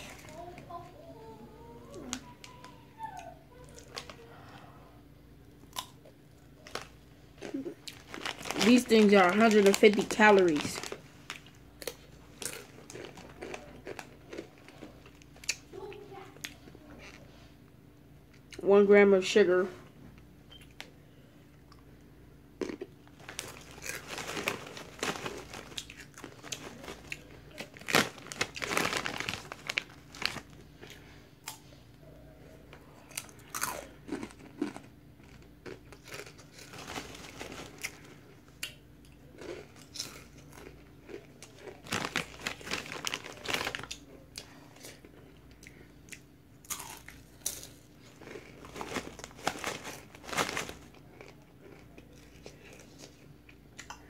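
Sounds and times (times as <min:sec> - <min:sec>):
person crunching chips: 0:05.6 - 0:15.6, 0:22.6 - 0:31.7, 0:33.0 - 0:54.0.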